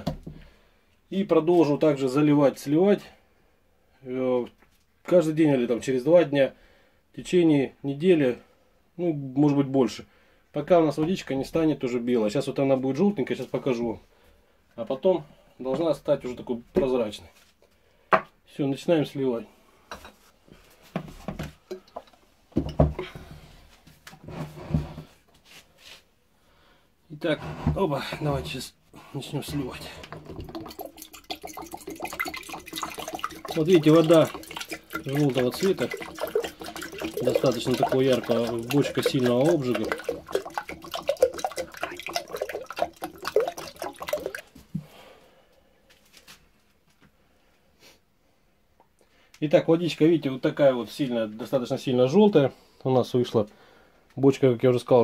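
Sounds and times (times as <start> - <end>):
water pouring into glass jug: 29.2 - 44.8.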